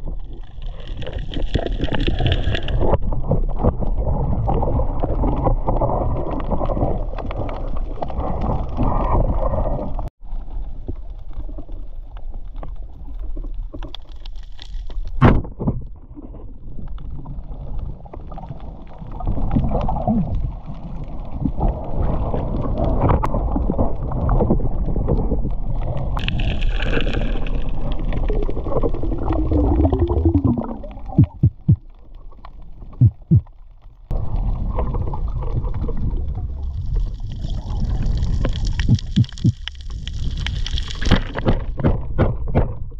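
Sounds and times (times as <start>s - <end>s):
muffled water sloshing and gurgling: 0.0s - 42.9s
heavy low rumble: 29.6s - 31.9s, 34.1s - 40.4s.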